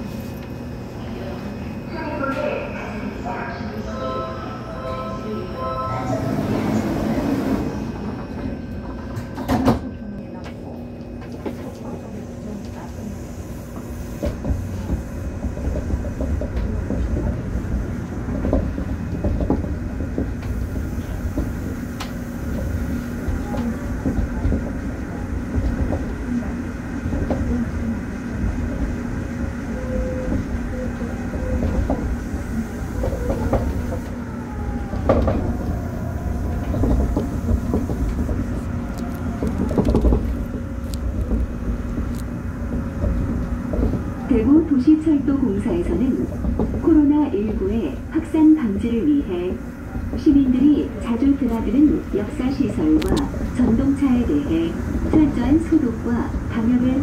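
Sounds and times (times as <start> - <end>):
monorail tyres rumbling on guideway: 5.9 - 57.0.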